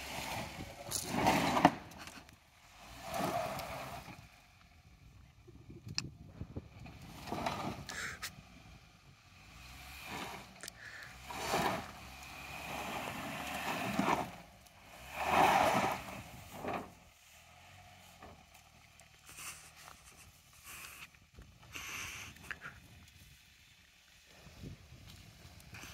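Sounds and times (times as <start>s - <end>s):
low engine hum: 0.0s - 25.9s
truck engine revving: 9.3s - 19.4s.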